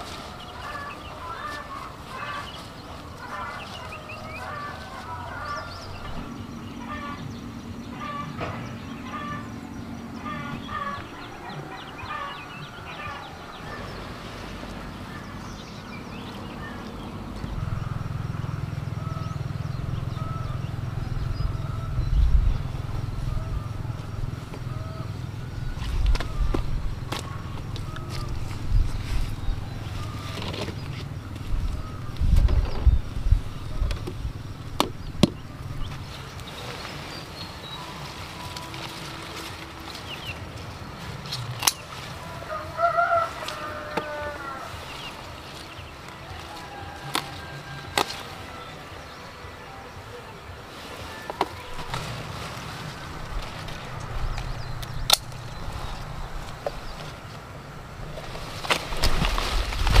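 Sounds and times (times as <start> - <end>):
steady low hum: 0.0 - 46.8
pruning shears clicking: 41.2 - 42.1, 47.0 - 48.3, 53.2 - 57.2.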